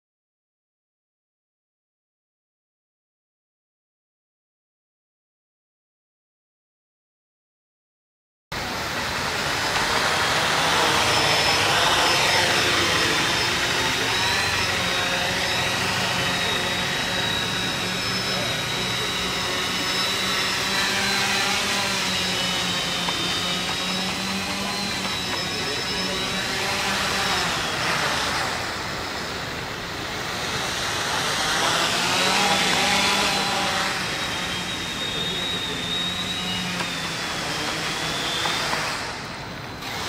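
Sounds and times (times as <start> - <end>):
drone propellers whining: 8.6 - 40.0.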